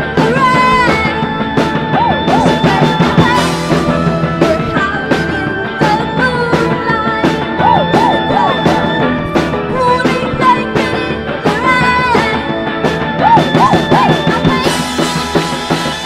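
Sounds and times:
woman singing: 0:00.0 - 0:15.2
electric guitar: 0:00.0 - 0:16.0.

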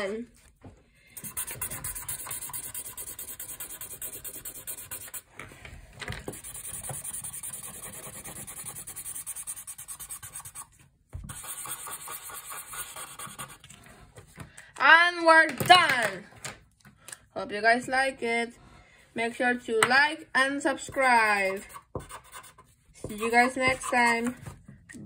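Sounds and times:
marker scratching on paper: 0:01.2 - 0:05.3, 0:06.3 - 0:13.8, 0:20.8 - 0:24.5.

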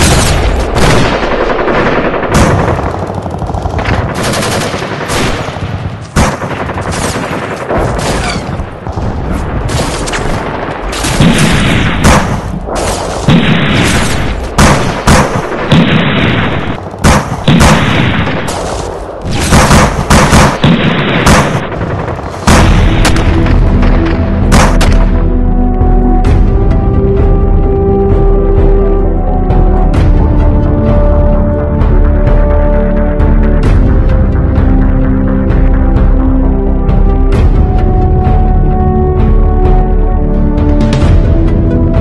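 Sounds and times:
rifle and machine-gun fire: 0:00.0 - 0:25.2.

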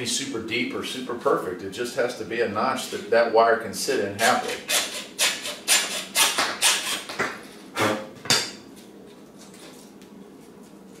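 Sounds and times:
hacksaw cutting plastic pipe: 0:04.2 - 0:07.2.

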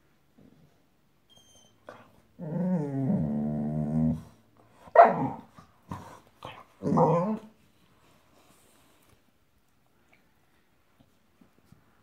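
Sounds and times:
puppy growling: 0:02.4 - 0:04.4, 0:05.1 - 0:07.5
puppy barking: 0:04.9 - 0:05.5.

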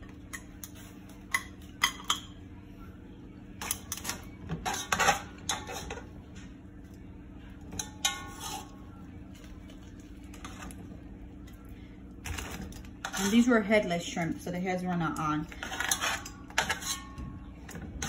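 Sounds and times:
metal tongs clinking on pan: 0:07.7 - 0:08.7.

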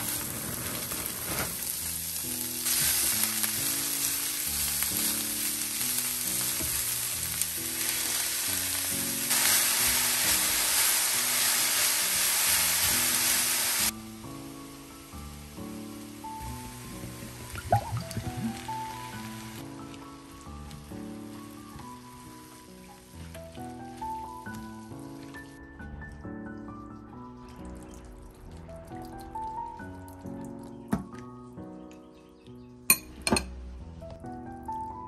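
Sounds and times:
food sizzling in a skillet: 0:00.0 - 0:17.5.

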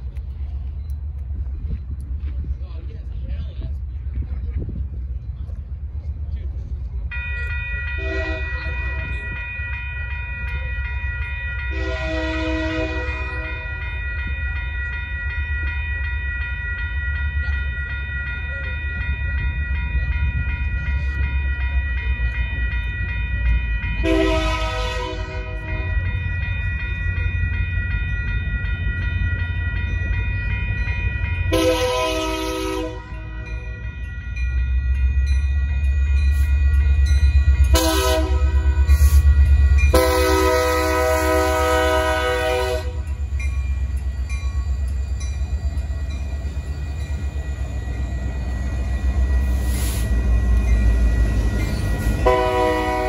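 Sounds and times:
crossing warning bell ringing: 0:02.9 - 0:53.0
locomotive horn blasts: 0:08.0 - 0:08.6, 0:11.7 - 0:13.6, 0:24.0 - 0:25.8, 0:31.5 - 0:33.3, 0:37.7 - 0:38.8, 0:39.9 - 0:43.1, 0:52.2 - 0:53.0.

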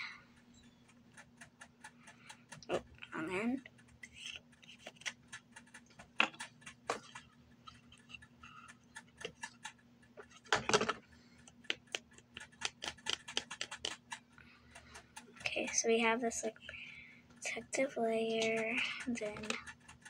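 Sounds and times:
faint steady hum: 0:00.0 - 0:20.0
plastic bottles clicking and tapping: 0:06.1 - 0:07.3, 0:10.2 - 0:14.0.

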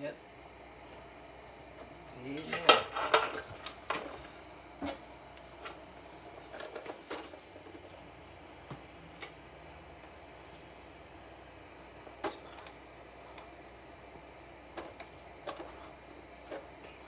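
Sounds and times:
pots and dishes clattering: 0:02.4 - 0:04.2.

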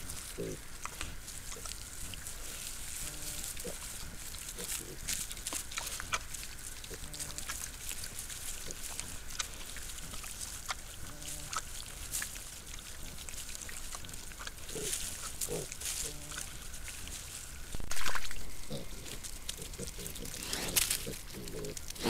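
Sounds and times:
wild boar grunting: 0:00.0 - 0:07.8, 0:14.0 - 0:17.2, 0:18.5 - 0:22.0
piglets rooting on ground: 0:00.0 - 0:22.0.

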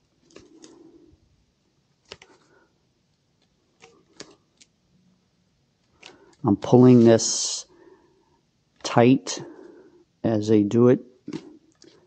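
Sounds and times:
soft rubbing of racquet grip: 0:06.0 - 0:07.4.

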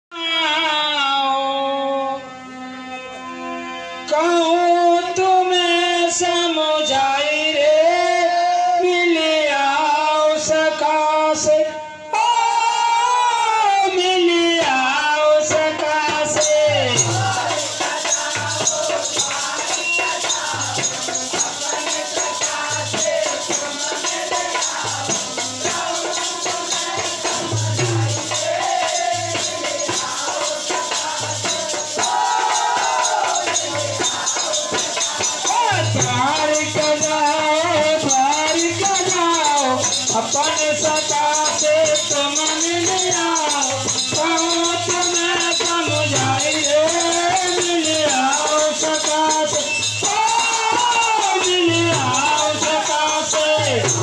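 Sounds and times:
man singing: 0:00.0 - 0:02.3, 0:04.1 - 0:54.0
harmonium: 0:00.1 - 0:54.0
drum beats: 0:14.4 - 0:54.0
jingling rattle percussion: 0:15.4 - 0:54.0.

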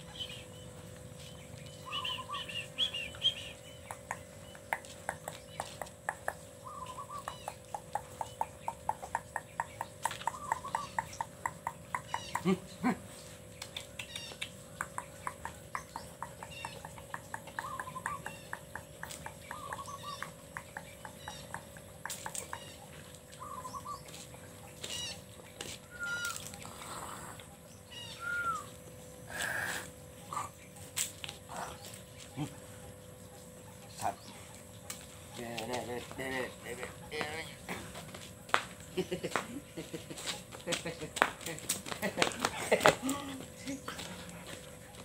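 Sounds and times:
birds chirping: 0:00.0 - 0:45.0
steady high hum: 0:00.0 - 0:45.0
whistled bird notes: 0:01.8 - 0:03.8, 0:25.9 - 0:26.6, 0:27.9 - 0:28.8.

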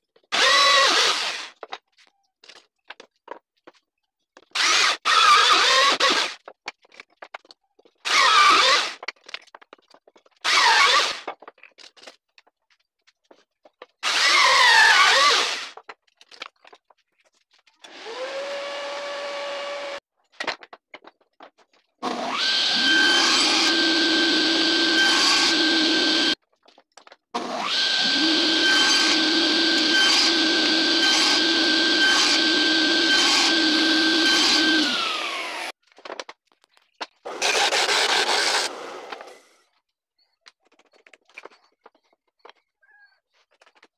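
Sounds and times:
drill press boring wood: 0:00.2 - 0:01.7, 0:04.5 - 0:06.3, 0:08.1 - 0:09.0, 0:10.4 - 0:11.3, 0:14.0 - 0:15.8, 0:17.8 - 0:20.0, 0:22.0 - 0:26.4, 0:27.4 - 0:35.8, 0:37.3 - 0:39.6
table saw cutting wood: 0:00.3 - 0:01.5, 0:04.6 - 0:06.4, 0:08.1 - 0:09.0, 0:10.5 - 0:11.2, 0:14.0 - 0:15.8, 0:17.9 - 0:20.0, 0:22.0 - 0:26.4, 0:27.4 - 0:35.8, 0:37.3 - 0:39.6
disc sander sanding wood: 0:22.4 - 0:26.4, 0:27.6 - 0:35.7.

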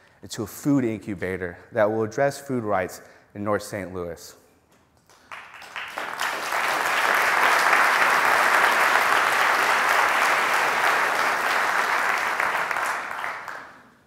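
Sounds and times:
audience applause: 0:05.2 - 0:14.0.

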